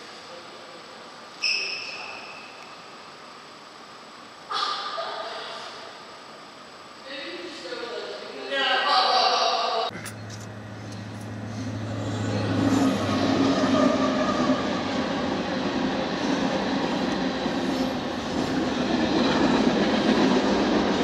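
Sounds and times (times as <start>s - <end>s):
locomotive low hum: 9.9s - 21.0s.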